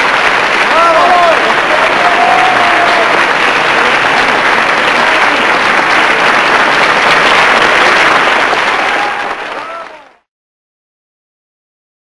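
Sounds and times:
audience applause: 0.0 - 10.3.

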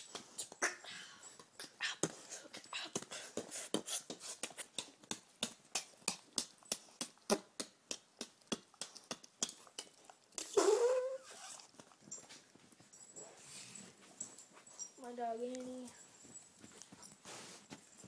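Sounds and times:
beatboxing clicks and lip pops: 4.4 - 11.0
dog whining: 10.4 - 11.7.

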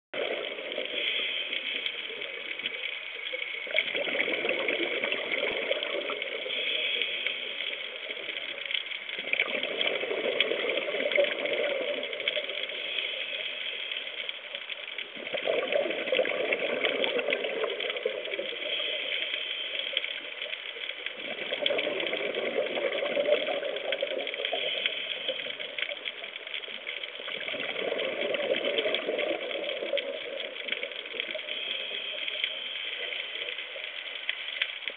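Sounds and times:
exhaled bubbles bursting: 0.2 - 14.4, 15.0 - 34.1
regulator inhale hiss: 0.7 - 2.9, 5.7 - 9.1, 11.4 - 15.0, 18.3 - 21.0, 24.4 - 26.2, 30.9 - 34.8.

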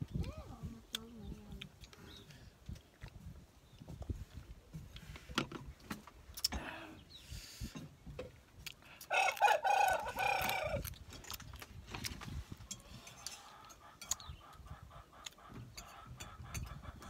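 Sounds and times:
rooster crowing: 9.1 - 10.8.

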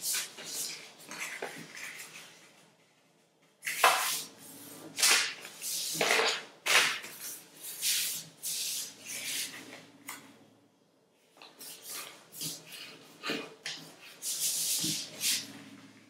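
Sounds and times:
paper rustling while folded: 0.0 - 9.8.

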